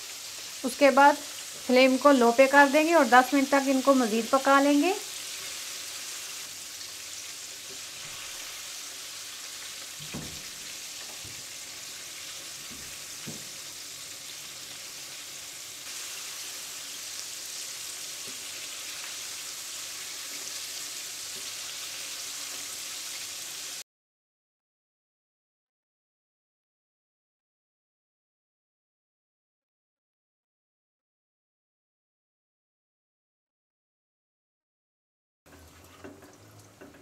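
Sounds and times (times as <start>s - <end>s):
chicken deep-frying in oil: 0.0s - 23.8s, 35.5s - 37.0s.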